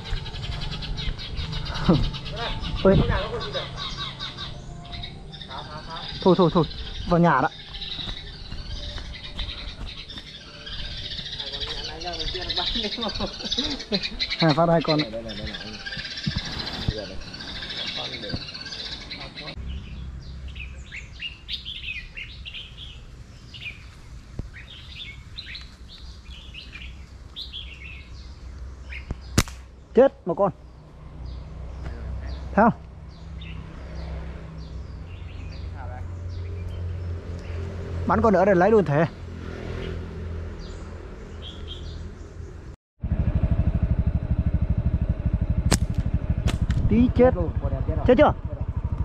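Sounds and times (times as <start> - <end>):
small birds chirping: 0.0 - 42.8
low hum: 43.0 - 49.0
low rumble: 43.0 - 49.0.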